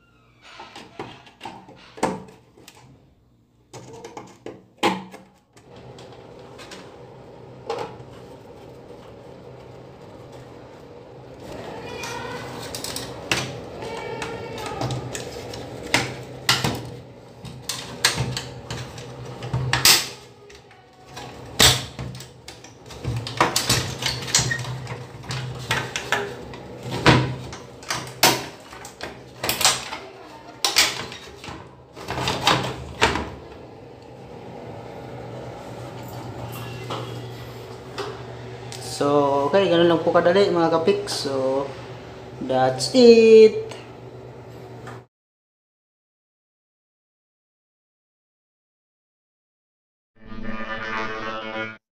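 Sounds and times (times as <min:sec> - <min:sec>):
exhaust fan humming: 0:05.6 - 0:30.7, 0:31.5 - 0:44.7.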